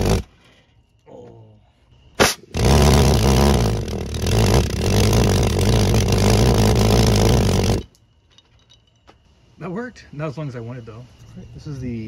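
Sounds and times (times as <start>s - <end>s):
pulse jet low pulsing buzz: 1.9s - 8.0s.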